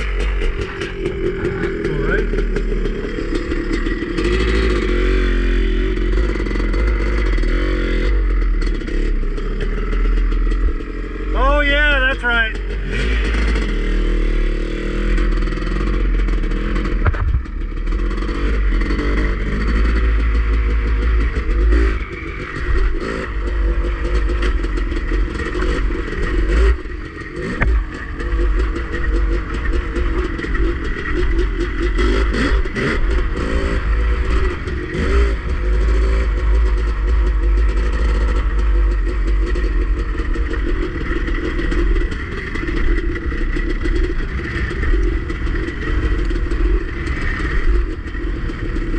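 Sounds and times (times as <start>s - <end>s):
dirt bike engine revving: 0.0s - 48.9s
wind rumble on microphone: 17.0s - 17.6s.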